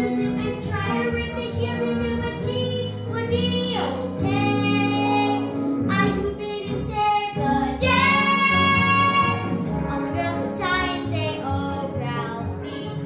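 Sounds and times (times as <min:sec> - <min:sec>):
boy singing: 0:00.0 - 0:09.4
instrumental accompaniment: 0:00.0 - 0:13.0.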